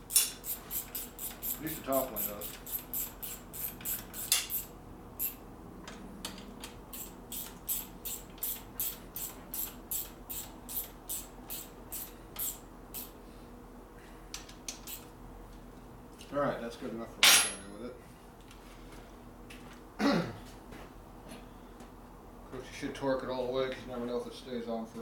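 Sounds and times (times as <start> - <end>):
ratchet wrench clicking: 0.1 - 5.4, 6.9 - 13.1, 14.7 - 15.0.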